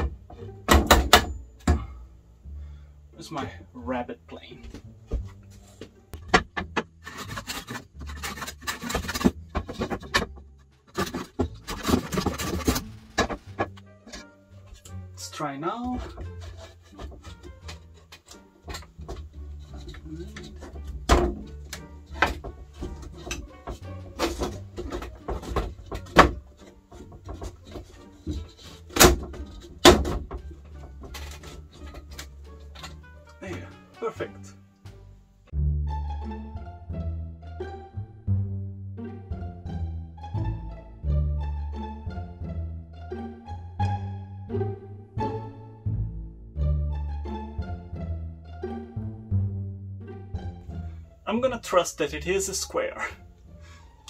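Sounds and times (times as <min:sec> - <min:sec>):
wooden panel knocking and rubbing: 0:05.0 - 0:14.8, 0:15.9 - 0:33.7
plane rasping on wood: 0:15.9 - 0:32.2.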